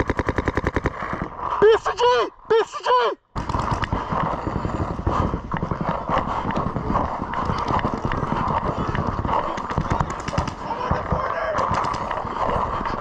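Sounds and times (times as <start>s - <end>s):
paintball markers firing rapidly: 0.0s - 1.3s, 3.4s - 13.0s
sharp cracks: 3.4s - 4.4s.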